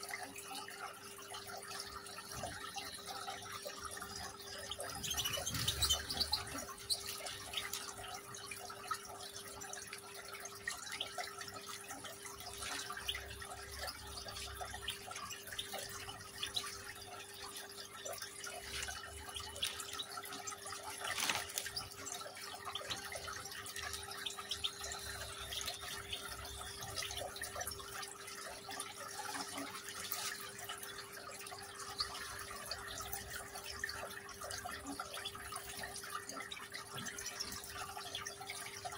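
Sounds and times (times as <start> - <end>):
fountain trickling and dripping: 0.0 - 38.9.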